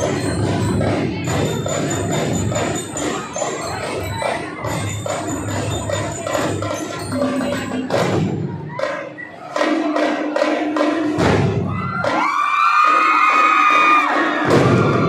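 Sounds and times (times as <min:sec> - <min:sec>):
bell-lyre notes ringing: 0:00.0 - 0:08.1
drum beats: 0:00.0 - 0:15.0.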